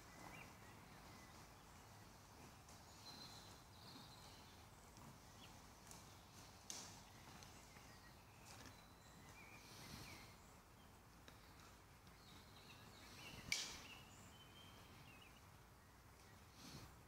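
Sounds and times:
sharp snap: 13.5 - 13.8.

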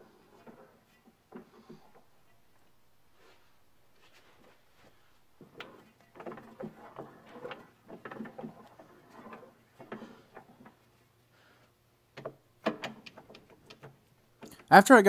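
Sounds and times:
light metallic clicks and clunks: 5.4 - 14.7.

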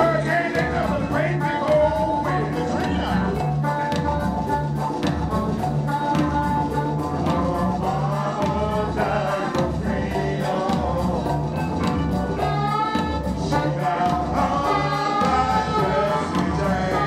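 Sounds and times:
man singing lead vocal: 0.0 - 3.5, 7.2 - 17.0
live band playing: 0.0 - 17.0.

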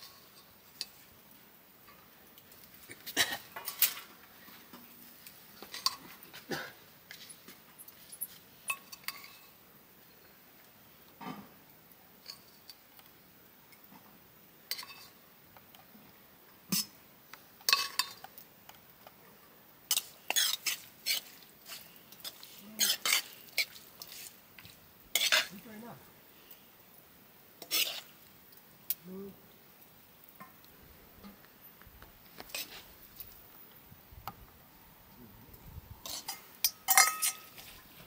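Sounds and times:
pots and utensils clinking: 0.0 - 1.0, 2.8 - 4.9, 5.6 - 9.6, 14.7 - 15.8, 16.7 - 17.0, 17.6 - 18.4, 19.9 - 24.3, 36.0 - 37.9.

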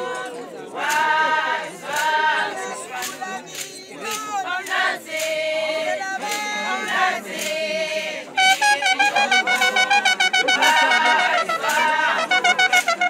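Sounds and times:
women singing together: 0.0 - 8.4, 10.8 - 12.4.

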